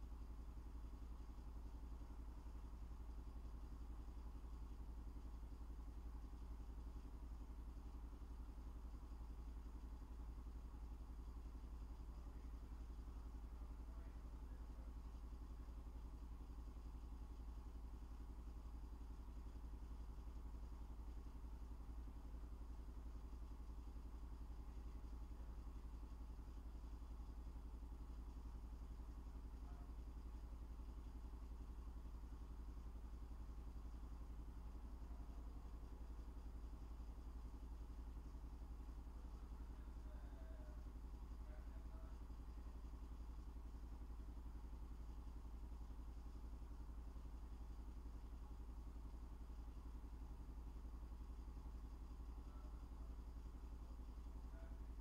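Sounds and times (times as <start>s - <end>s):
faint low hum with buzz: 0.0s - 55.0s.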